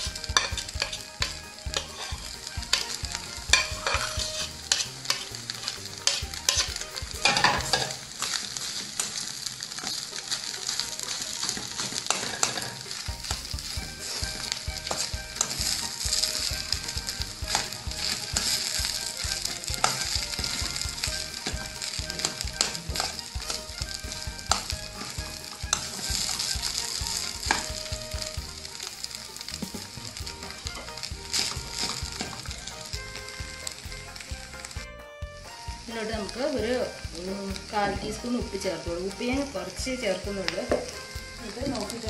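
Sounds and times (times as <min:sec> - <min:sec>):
metal spoon scraping pan: 0:00.0 - 0:29.8
low sizzle: 0:00.0 - 0:42.0.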